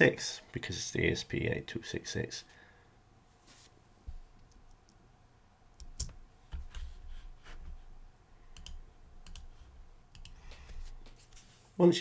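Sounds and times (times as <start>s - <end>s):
computer mouse clicks: 8.5s - 9.5s, 10.1s - 10.8s.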